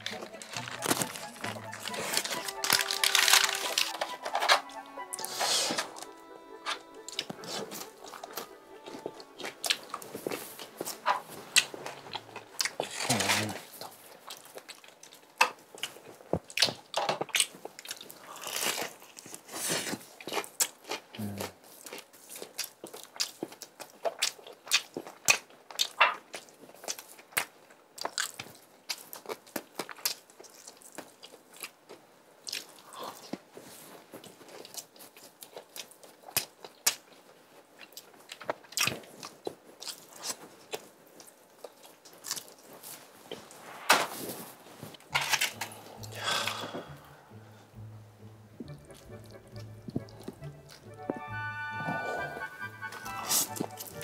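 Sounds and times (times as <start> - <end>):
crunching fried chicken: 0.0 - 4.1, 11.6 - 33.4, 34.2 - 42.9.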